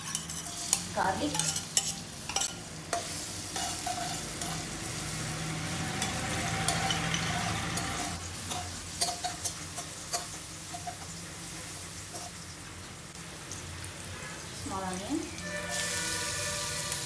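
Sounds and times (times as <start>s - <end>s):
metal spoon scraping a wok: 0.0s - 11.1s, 15.4s - 17.0s
garlic sizzling in hot oil: 0.0s - 17.0s.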